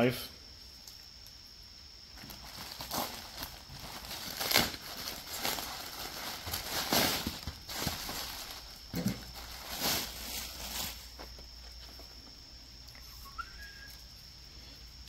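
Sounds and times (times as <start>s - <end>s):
plastic packaging crinkling: 2.2s - 12.0s.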